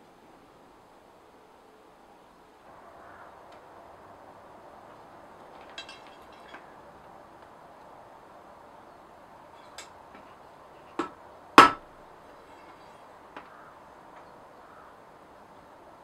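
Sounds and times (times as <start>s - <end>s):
faint metal clinks: 5.5s - 7.0s, 9.5s - 11.1s, 12.3s - 13.1s
hammer blows on steel rod: 9.6s - 11.9s.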